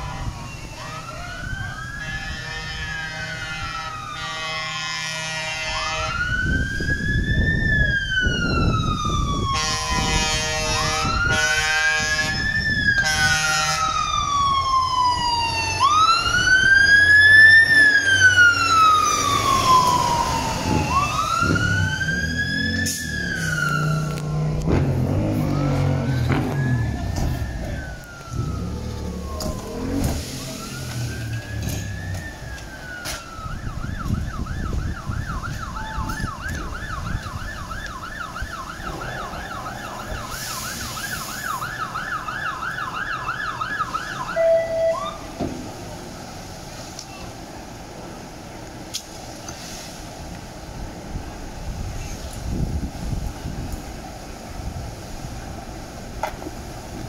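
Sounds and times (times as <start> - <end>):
heavy engine rumbling: 0.0 - 42.7
fire engine siren: 0.0 - 48.6.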